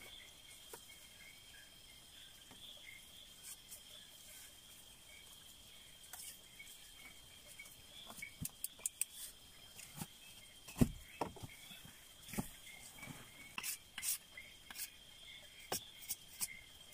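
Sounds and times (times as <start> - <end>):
night insects trilling: 0.0 - 16.9
dull thumps: 9.9 - 11.6.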